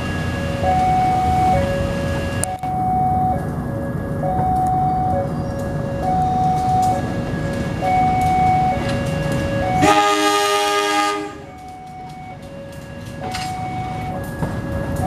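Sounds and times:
level-crossing alarm tones: 0.0s - 15.0s
passing train rumble: 0.0s - 15.0s
train horn: 9.7s - 11.8s.

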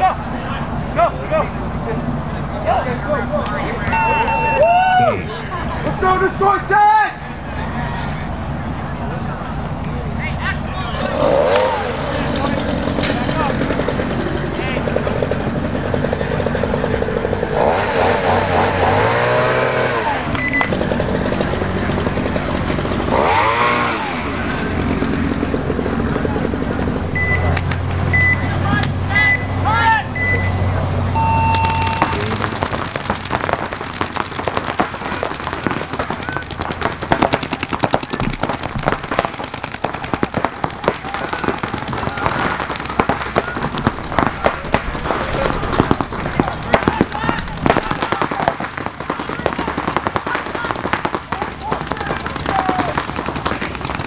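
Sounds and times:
short high beep: 3.9s - 4.8s, 20.4s - 20.7s, 27.2s - 28.5s, 29.2s - 29.6s, 30.2s - 32.3s
motor revving: 11.1s - 25.9s
paintball guns firing pops: 31.6s - 54.0s.

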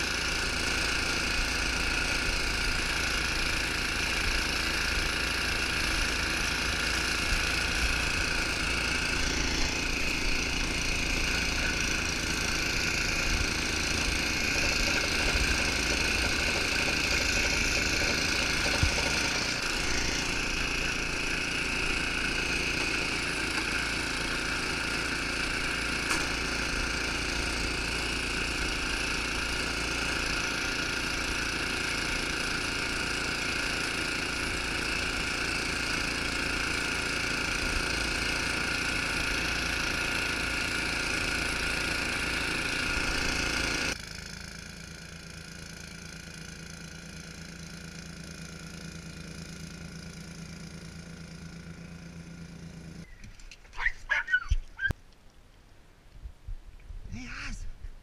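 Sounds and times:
snowblower engine running: 0.0s - 54.9s.

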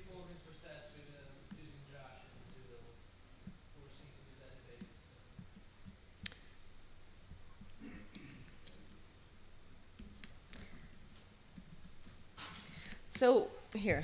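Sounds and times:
low room hum: 0.0s - 14.0s
laptop clicks: 4.8s - 6.8s.

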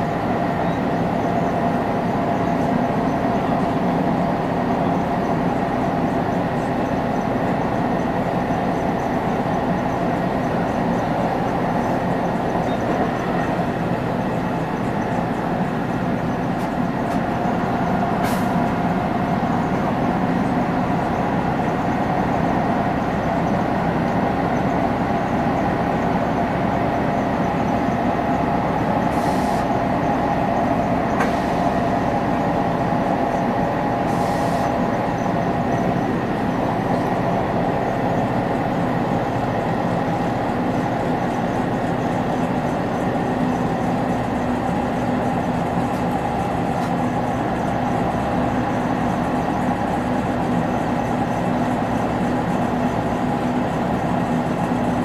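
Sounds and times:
train interior drone and rail noise: 0.0s - 55.0s.

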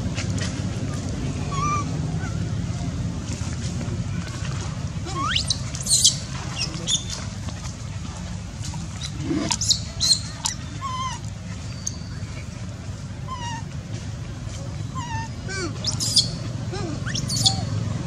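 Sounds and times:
low background rumble: 0.0s - 18.0s
high-pitched squeaks and chirps: 15.0s - 16.4s, 17.0s - 17.7s.

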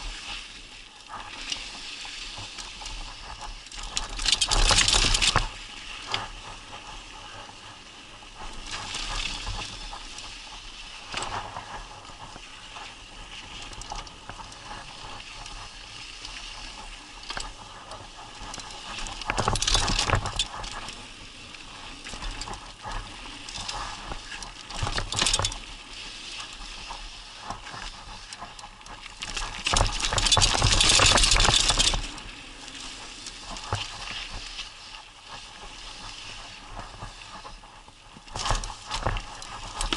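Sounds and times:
bike tyres and frame rattling: 1.2s - 7.5s, 8.4s - 34.6s, 38.1s - 39.9s.

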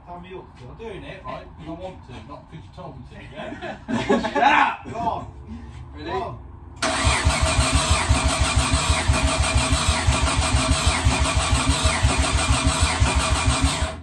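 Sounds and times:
engine cranking with starter whine: 6.8s - 14.0s.

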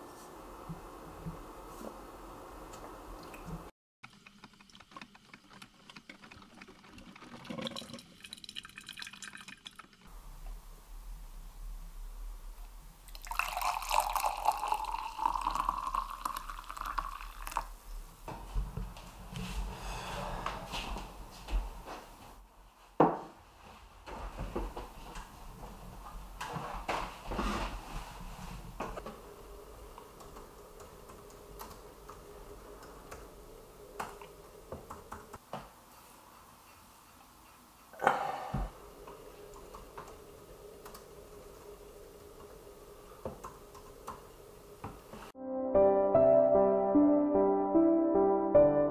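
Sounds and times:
laptop keyboard typing: 4.0s - 7.4s
coffee pouring into a mug: 5.0s - 10.0s, 13.1s - 17.8s.

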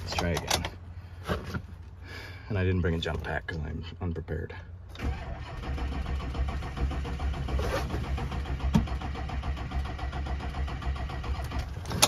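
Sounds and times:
diesel engine cranking without starting: 4.9s - 12.0s.

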